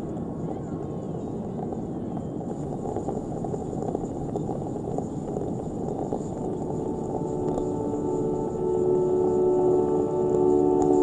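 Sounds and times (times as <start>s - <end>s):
dense low rumble: 1.2s - 11.0s
sustained musical tones: 6.3s - 11.0s.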